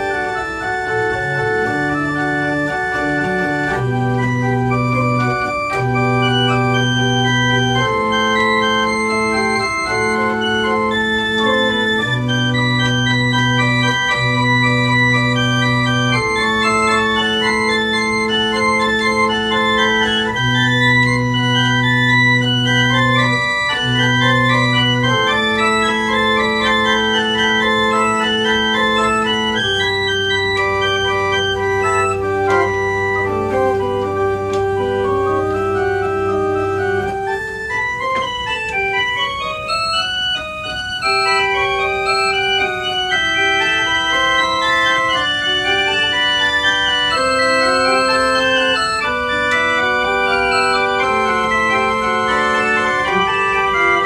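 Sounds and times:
pipe organ playing slow piece: 0.0s - 54.0s.

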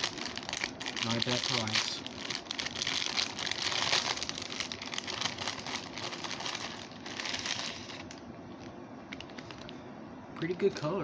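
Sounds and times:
plastic mailer bag crinkling: 0.0s - 8.2s.

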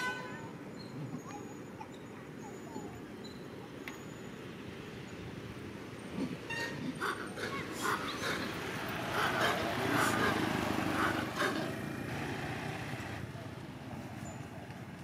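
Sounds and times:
vehicle passing: 6.1s - 15.0s.

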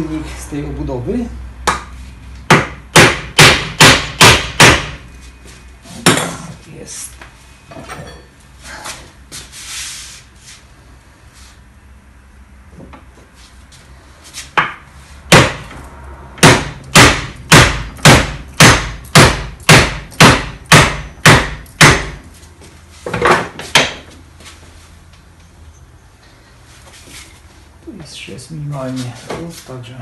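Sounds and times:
hammer knocking on wood block: 2.5s - 5.0s, 14.6s - 15.6s, 16.4s - 22.2s.

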